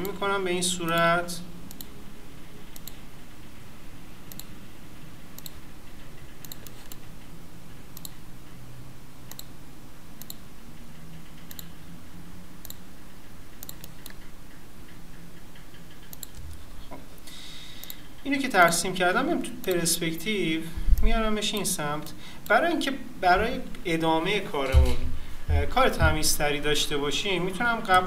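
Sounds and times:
faint low hum: 0.0 - 28.0
computer mouse button clicking: 11.5 - 11.7.

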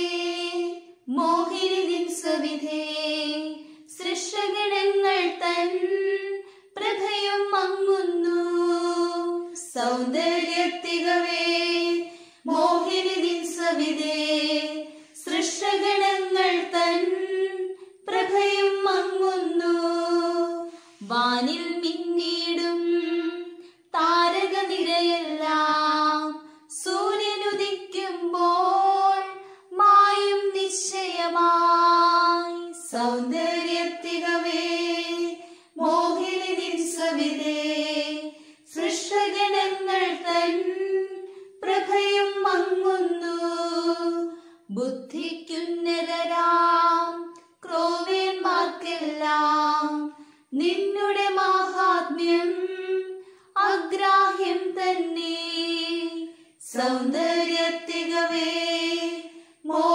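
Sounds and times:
high voice singing a hymn: 0.0 - 59.9
singer breathing: 6.4 - 6.7, 12.0 - 12.5, 14.8 - 15.2, 20.6 - 21.1, 29.4 - 29.7, 35.4 - 35.8, 38.3 - 38.7, 44.3 - 44.7, 50.1 - 50.5, 53.2 - 53.5, 59.3 - 59.7.

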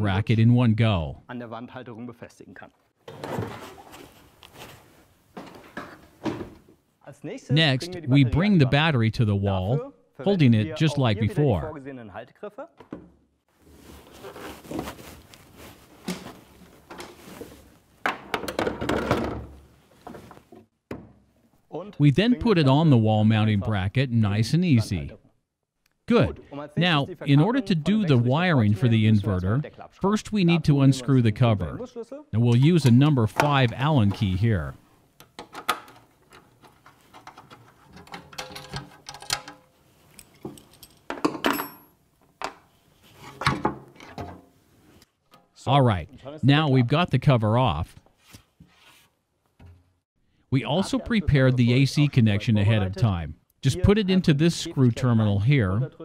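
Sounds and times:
handling noise: 13.6 - 20.7
knocks and scrapes on wall bracket: 35.3 - 39.7, 42.4 - 44.5.

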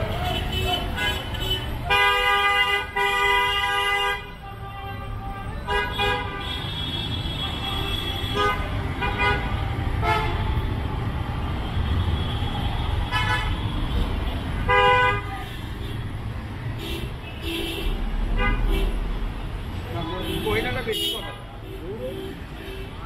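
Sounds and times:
car horns honking: 0.0 - 10.6, 14.6 - 16.1, 19.9 - 23.0.

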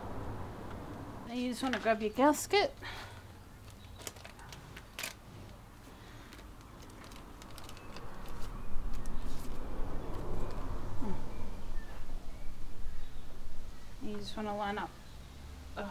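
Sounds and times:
low uneven rumble: 0.0 - 3.7
small parts clicking and tapping: 6.2 - 9.1.

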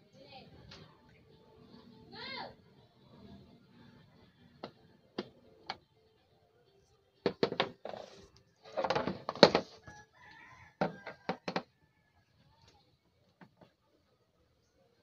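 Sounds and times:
plastic cover clattering: 7.3 - 9.8.

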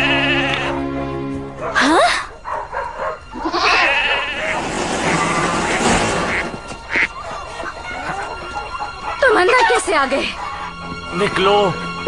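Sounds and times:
animals crying with bleat-like calls: 0.0 - 0.9, 3.2 - 5.8
dramatic background music: 5.0 - 12.0.

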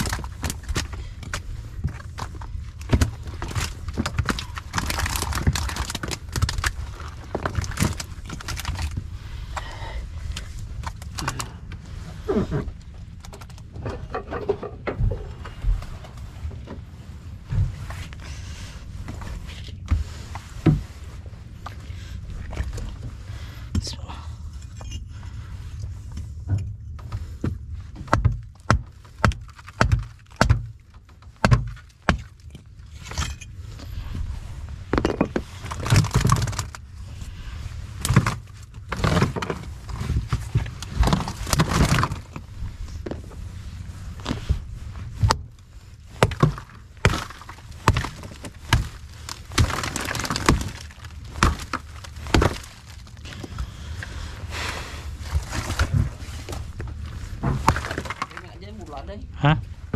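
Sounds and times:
steady low rumble: 0.0 - 59.9
scraping and rattling: 10.3 - 23.2
sharp knocks and thumps: 13.3 - 16.8, 26.4 - 32.6, 55.6 - 58.4.

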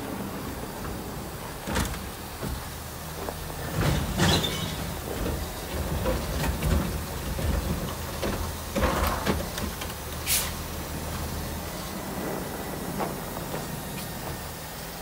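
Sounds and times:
truck engine running: 0.0 - 15.0
metallic clanks and rattles: 3.6 - 10.0.

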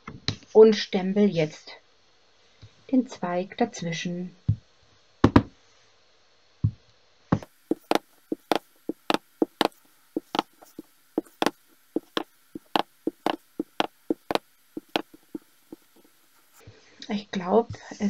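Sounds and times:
stamp block knocking: 7.7 - 16.1.

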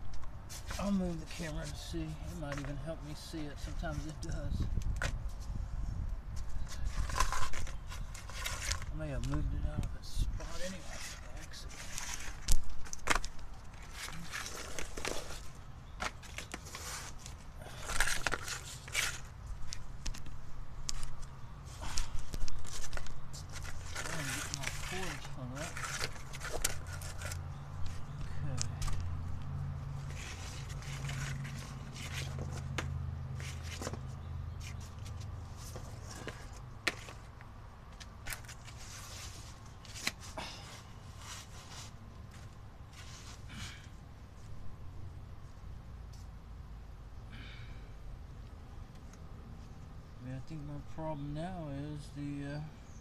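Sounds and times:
rustling: 6.3 - 9.5, 10.2 - 44.6.

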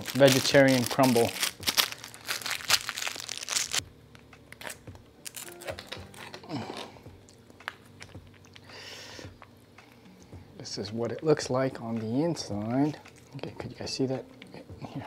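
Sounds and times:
foil packaging crinkling and tearing: 0.0 - 6.9.

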